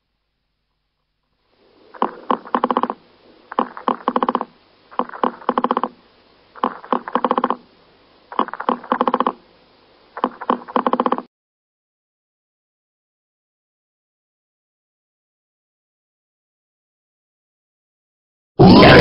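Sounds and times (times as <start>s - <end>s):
beetle stridulating: 1.9s - 6.0s, 8.3s - 9.4s.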